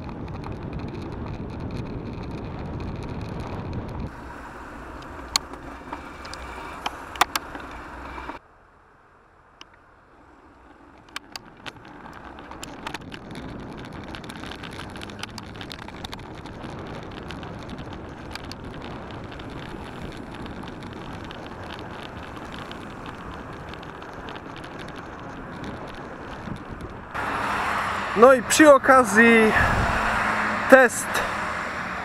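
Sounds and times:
sharp clicks and ticks: 0.0s - 4.1s, 4.9s - 8.4s, 10.9s - 29.5s
wind rushing on microphone: 0.0s - 7.8s, 11.4s - 32.0s
bike tyres hissing on slush: 27.2s - 32.0s.

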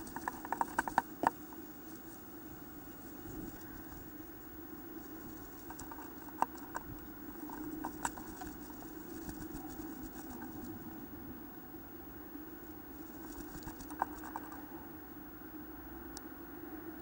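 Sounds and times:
bird scratching in wooden nest box: 0.0s - 4.4s, 5.0s - 10.8s, 13.1s - 14.6s
steady low hum: 0.0s - 17.0s.

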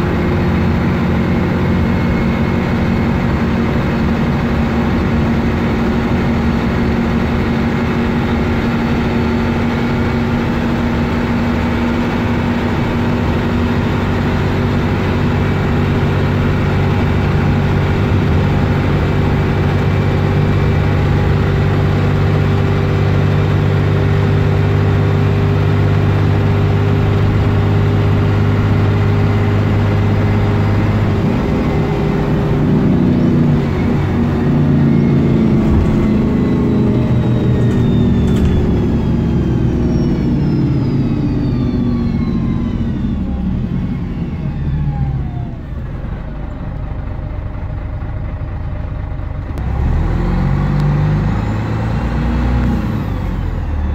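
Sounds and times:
bus engine from inside: 0.0s - 53.9s
whine falling in pitch: 26.2s - 45.5s.

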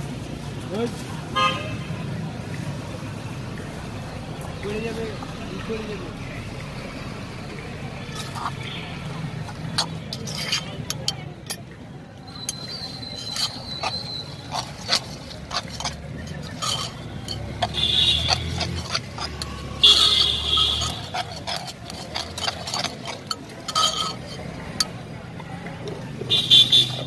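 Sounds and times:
metal spoon scraping in stone mortar: 7.4s - 27.0s
spoon knocking stone bowl: 12.4s - 25.0s.

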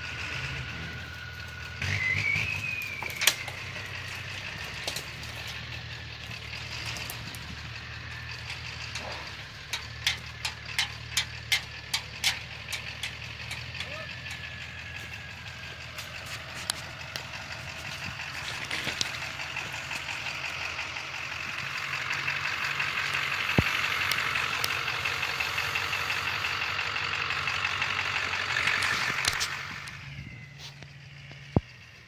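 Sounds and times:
pickup truck engine running: 0.0s - 32.0s
tyres crunching over gravel: 0.0s - 32.0s.

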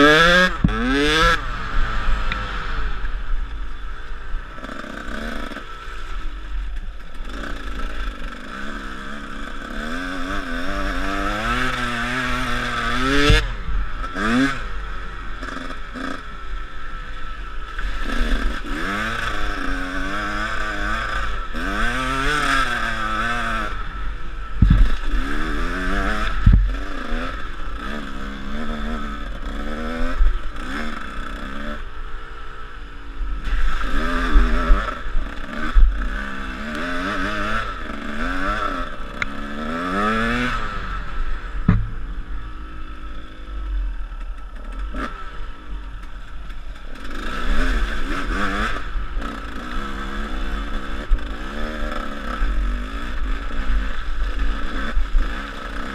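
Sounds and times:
dirt bike engine revving: 0.0s - 55.9s
sharp knocks: 41.6s - 42.4s.

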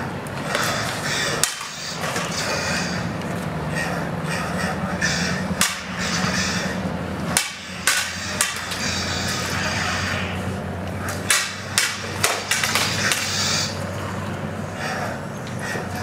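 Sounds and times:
lightsaber blades clacking: 0.3s - 3.0s, 4.9s - 13.8s.

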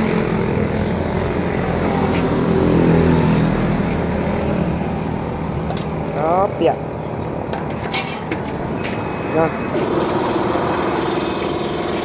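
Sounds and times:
vehicle engine passing by: 0.0s - 5.3s.

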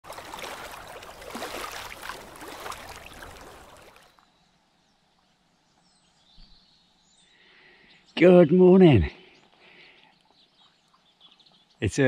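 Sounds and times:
water splashing and gurgling: 0.0s - 4.2s.

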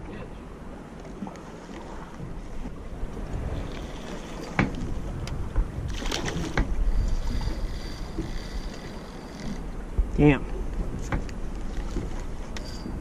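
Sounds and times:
water lapping against boat hull: 0.0s - 13.0s
wind on the microphone: 0.0s - 13.0s
knocks and splashes: 3.1s - 6.9s, 9.9s - 13.0s.

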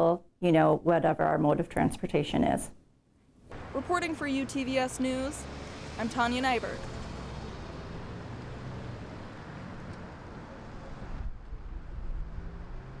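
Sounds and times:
car driving past: 3.5s - 13.0s
road and tyre noise: 3.5s - 13.0s.

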